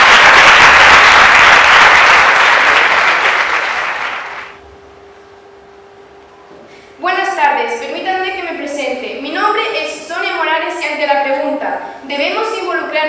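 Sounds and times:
audience applause: 0:00.0 - 0:04.6.

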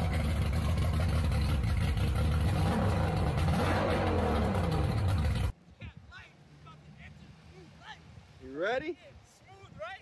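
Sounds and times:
outboard motor running: 0:00.0 - 0:05.5.

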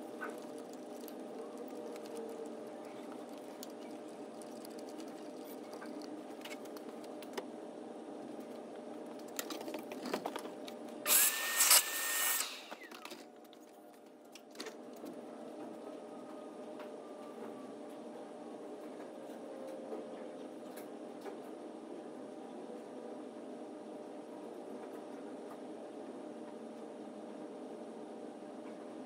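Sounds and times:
shop vacuum running: 0:11.0 - 0:13.6.

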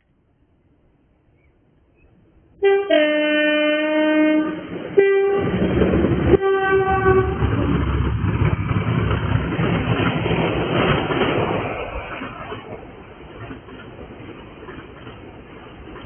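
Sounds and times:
locomotive horn blasts: 0:02.6 - 0:05.6, 0:06.3 - 0:07.5
wagons clattering on rails: 0:07.4 - 0:16.0.

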